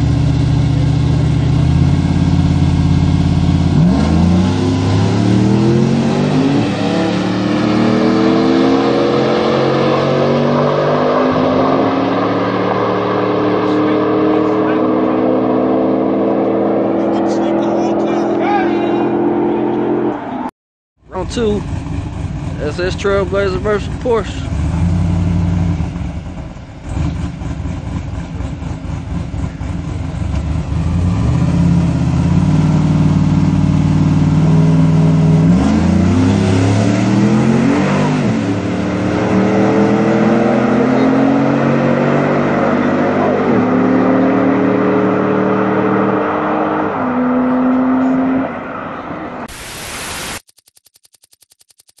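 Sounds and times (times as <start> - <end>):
car engines accelerating: 0.0 - 20.5, 21.1 - 49.5
short burst of noise: 49.5 - 52.0.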